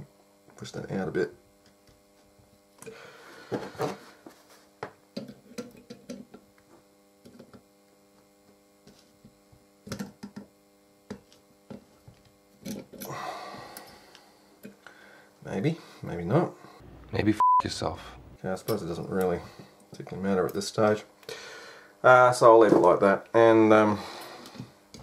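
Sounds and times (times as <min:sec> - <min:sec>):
electrical mains hum: 0:00.0 - 0:25.0.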